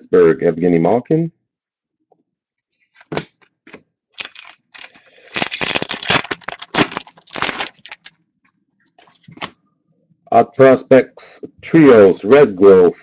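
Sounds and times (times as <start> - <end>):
cards snapping and rustling: 3.0 - 8.1.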